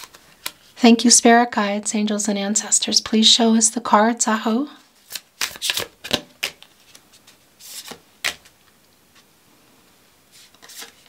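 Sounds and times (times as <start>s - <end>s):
rustle of cards: 0.0s - 0.8s, 4.8s - 9.3s, 10.3s - 11.0s
card snap: 5.1s - 6.7s, 7.8s - 8.5s.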